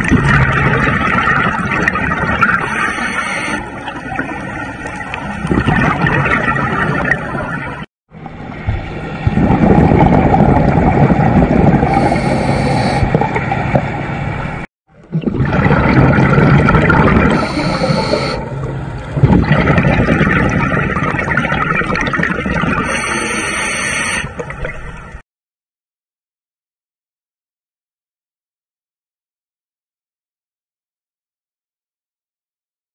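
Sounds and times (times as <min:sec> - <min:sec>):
scuba regulator breathing bubbles: 0:02.3 - 0:03.7, 0:11.4 - 0:13.4, 0:15.2 - 0:18.6, 0:19.3 - 0:24.5.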